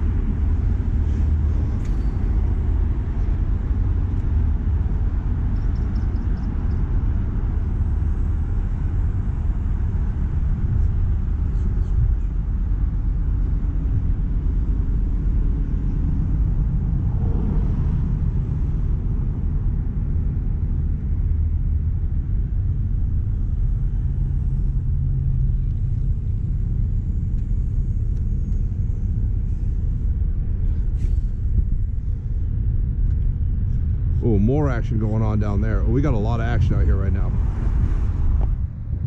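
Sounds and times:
low rumble: 0:00.0 - 0:39.0.

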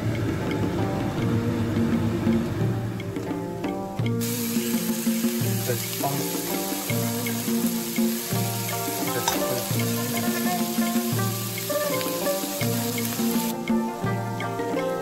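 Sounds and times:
background music: 0:00.0 - 0:15.0
food sizzling in a wok: 0:04.2 - 0:13.6.

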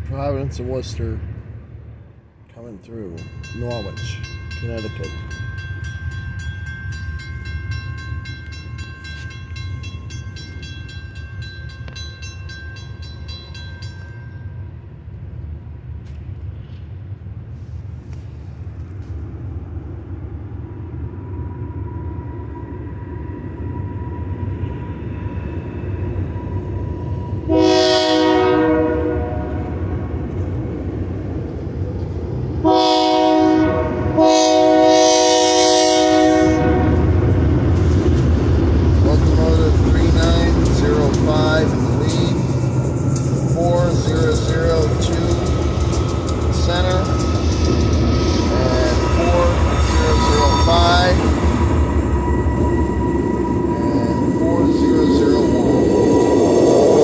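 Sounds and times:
diesel locomotive rumble: 0:00.0 - 0:57.0
crossing bell ringing: 0:02.6 - 0:15.2, 0:36.4 - 0:57.0
train air horn blast: 0:27.4 - 0:29.8, 0:32.6 - 0:37.2.

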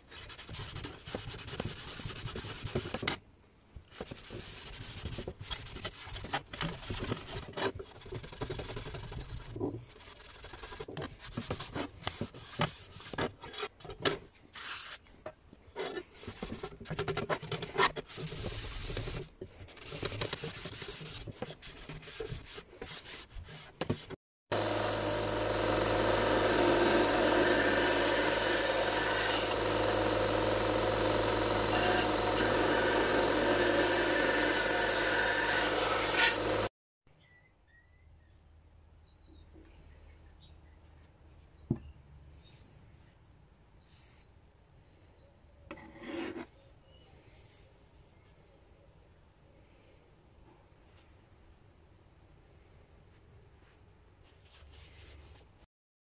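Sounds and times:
belt grinder humming: 0:24.5 - 0:36.7.

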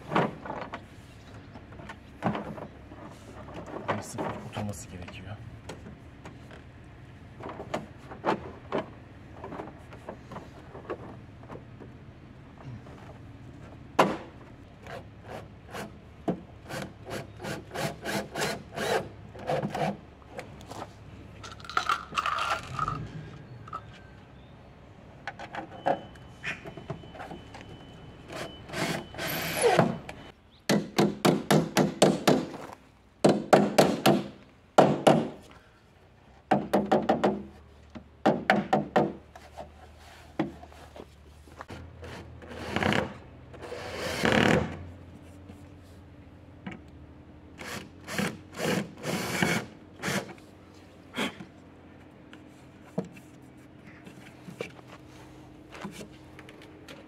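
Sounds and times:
cordless drill driving screws: 0:47.6 - 0:50.4.

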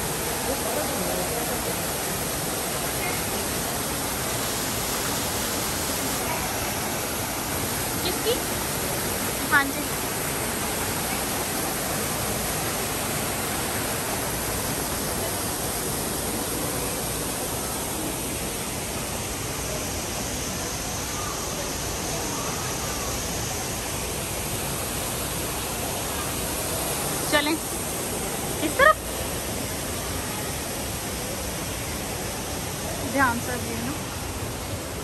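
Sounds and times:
falling water rushing: 0:00.0 - 0:35.0.

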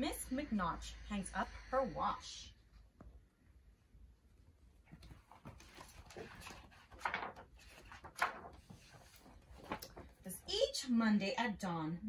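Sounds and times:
book pages rustling: 0:04.9 - 0:10.4.

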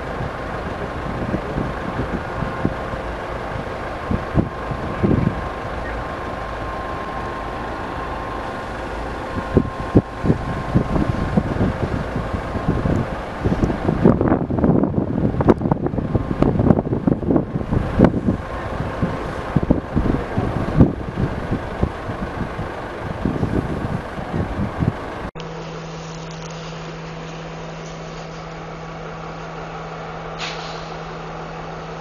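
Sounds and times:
wind buffeting microphone: 0:00.0 - 0:25.3
machinery running: 0:00.0 - 0:32.0
steady low rumble: 0:00.0 - 0:32.0.

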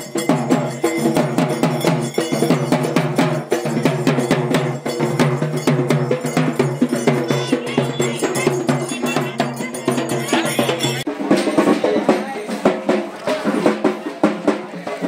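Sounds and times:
frame drums beaten with sticks: 0:00.0 - 0:15.0
held pitched tone: 0:06.3 - 0:11.1.

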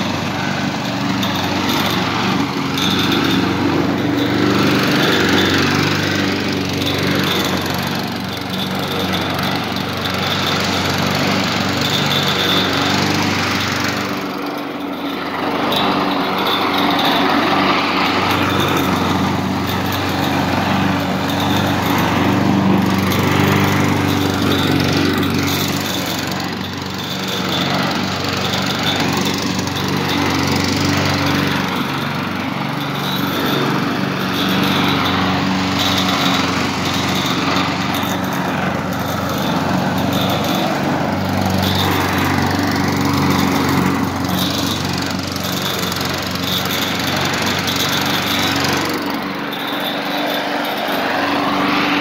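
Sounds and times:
lawn mower engine running: 0:00.0 - 0:52.0.

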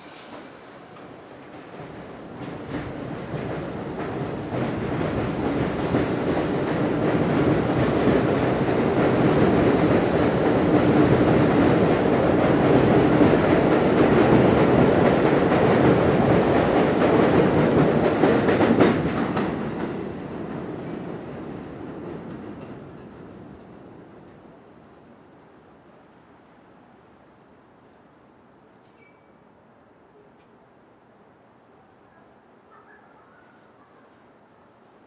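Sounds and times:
subway train speeding up: 0:00.0 - 0:25.2.

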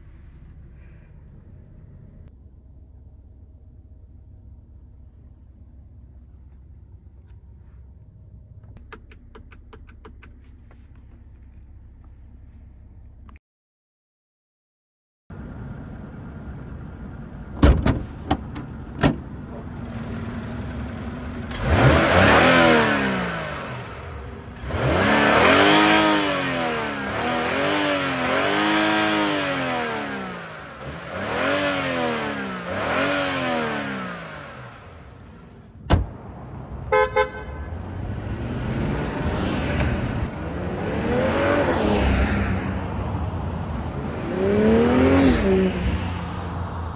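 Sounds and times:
car engine revving: 0:19.7 - 0:46.9
car horn toots: 0:36.9 - 0:37.8.

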